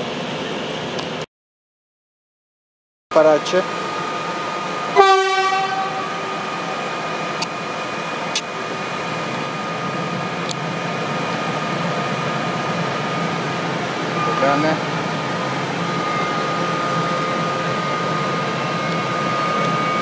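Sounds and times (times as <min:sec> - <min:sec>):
electric locomotive hum and whine: 0:00.0 - 0:01.3, 0:03.1 - 0:20.0
train horn blast: 0:05.0 - 0:06.9.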